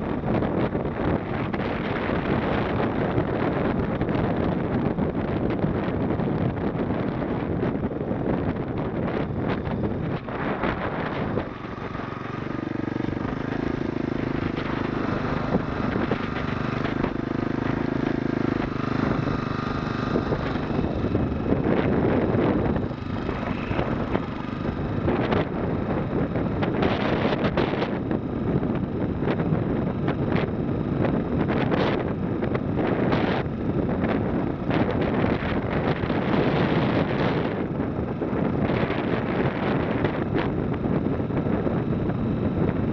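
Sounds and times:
wind buffeting microphone: 0:00.0 - 0:42.9
small engine running: 0:09.1 - 0:37.6.

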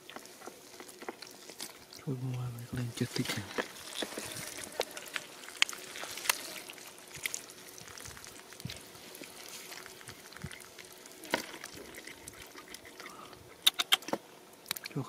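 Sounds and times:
hands squelching in mud: 0:03.2 - 0:14.0.

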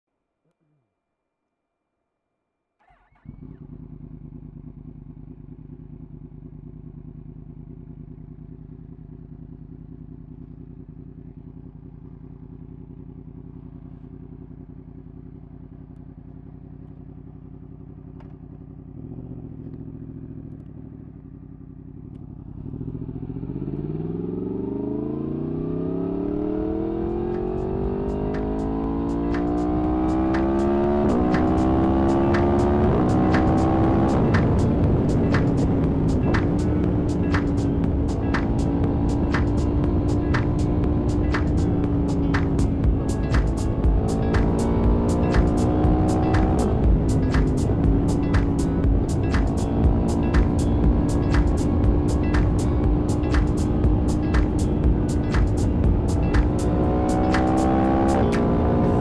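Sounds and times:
motorcycle accelerating away: 0:02.8 - 0:59.0
motorcycle engine starting and idling: 0:02.8 - 0:59.0
motorcycle throttle blip: 0:18.0 - 0:18.8, 0:19.5 - 0:21.2.

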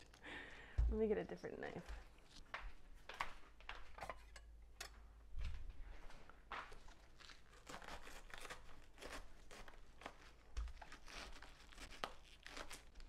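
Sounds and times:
knife crunching through cabbage: 0:06.8 - 0:13.0.

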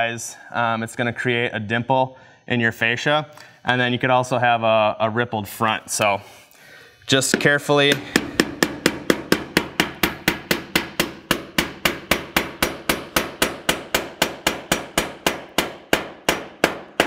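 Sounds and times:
hammer tapping nail into metal: 0:07.3 - 0:17.0.

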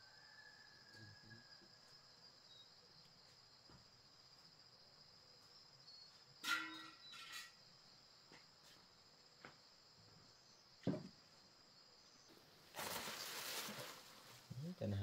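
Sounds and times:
crickets droning: 0:00.0 - 0:15.0
faint knocks: 0:10.8 - 0:11.2
rustling noise: 0:12.7 - 0:15.0.

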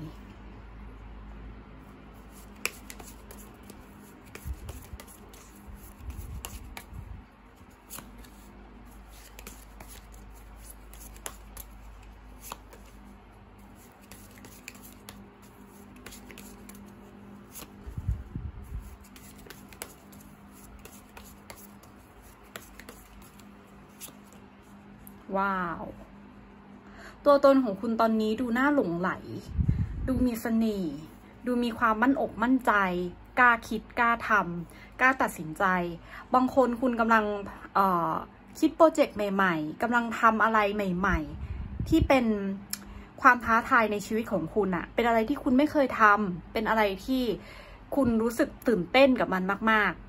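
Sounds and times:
cards being shuffled: 0:02.2 - 0:24.5.

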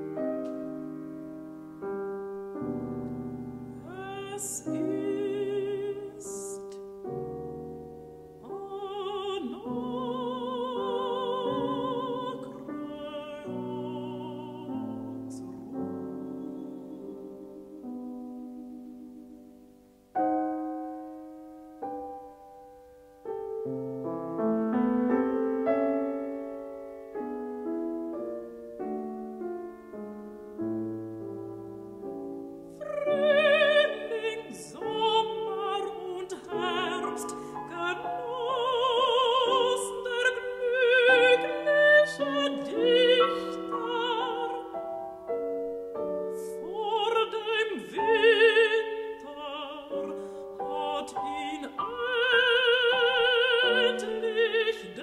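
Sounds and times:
piano: 0:00.0 - 0:55.0
woman singing classically: 0:03.9 - 0:06.9, 0:08.4 - 0:18.0, 0:32.8 - 0:44.8, 0:46.4 - 0:55.0.

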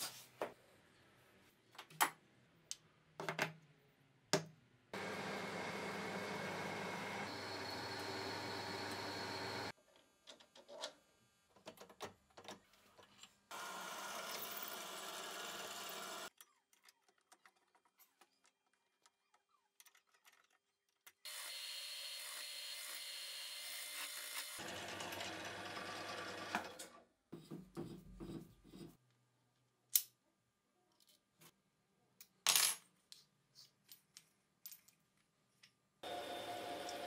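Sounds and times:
drill press cutting steel: 0:05.0 - 0:09.7.

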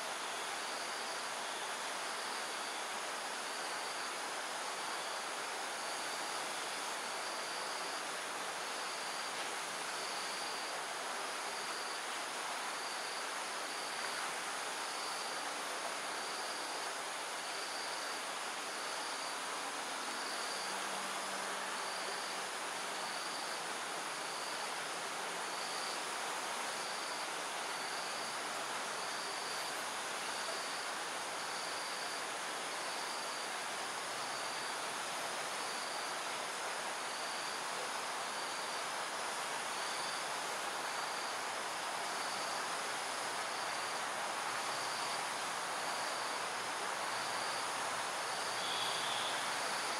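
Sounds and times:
steady insect hiss: 0:00.0 - 0:49.9
high insect chirp: 0:39.7 - 0:49.9.

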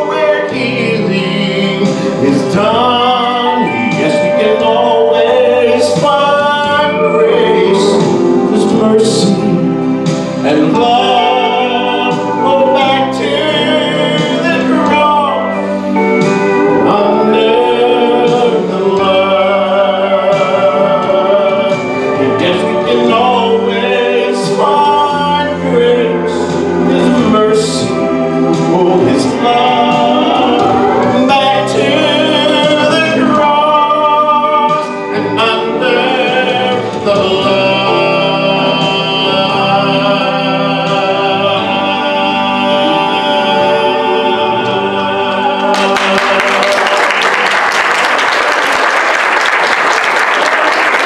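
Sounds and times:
man singing into a microphone: 0:00.0 - 0:47.4
musical accompaniment: 0:00.0 - 0:51.0
applause: 0:45.7 - 0:51.0.

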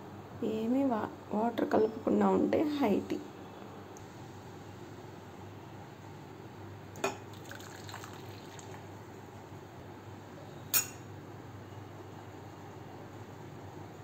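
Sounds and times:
tea pouring into a teacup: 0:07.1 - 0:08.9
crockery clinking: 0:10.7 - 0:11.1.

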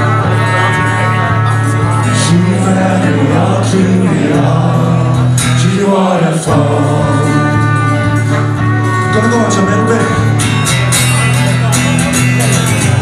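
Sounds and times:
man singing: 0:00.0 - 0:10.3
acoustic guitar: 0:00.0 - 0:13.0
trumpet playing: 0:07.1 - 0:10.3.

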